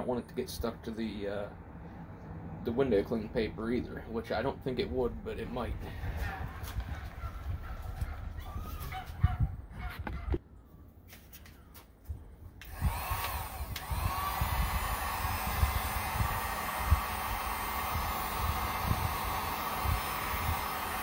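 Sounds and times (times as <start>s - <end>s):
heat gun fan whining and hissing: 12.5s - 21.0s.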